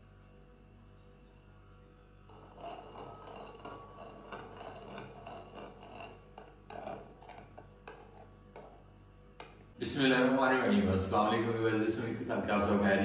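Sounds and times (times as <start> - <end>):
spoon stirring and scraping bowl: 2.3 - 9.7.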